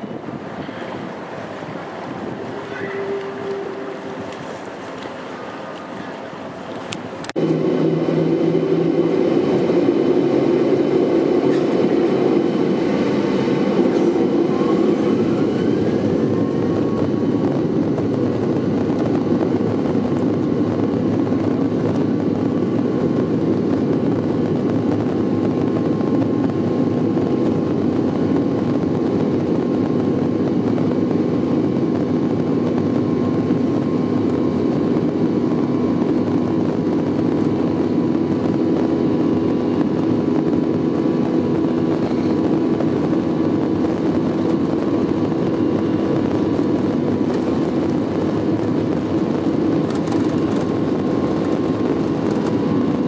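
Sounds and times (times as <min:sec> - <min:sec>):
jet engine rumble and whine: 0:00.0 - 0:53.0.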